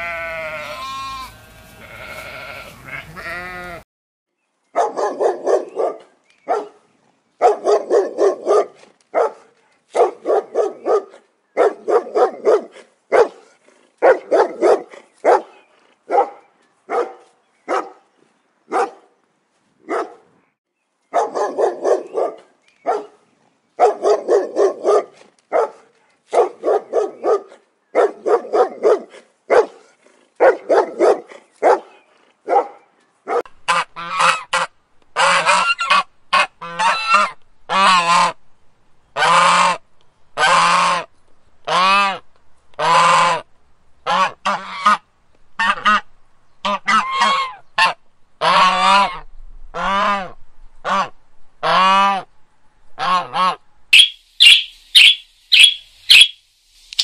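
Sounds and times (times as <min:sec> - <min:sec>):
loud animal calls: 0:53.1 - 0:56.4.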